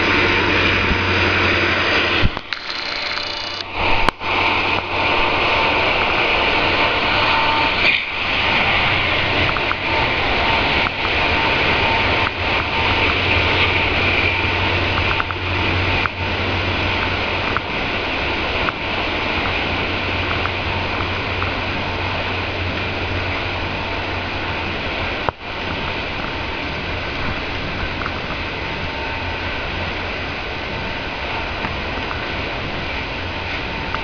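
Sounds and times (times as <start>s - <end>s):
train wheels rumbling on rail: 0.0s - 34.0s
sharp clicks: 2.3s - 3.7s.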